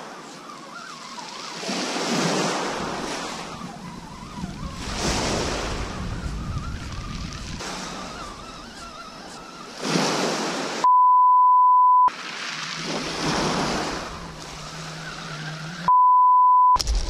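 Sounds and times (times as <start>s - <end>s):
waves washing onto shingle: 9.7s - 10.8s, 12.1s - 15.8s
censor bleep: 10.8s - 12.1s, 15.9s - 16.8s.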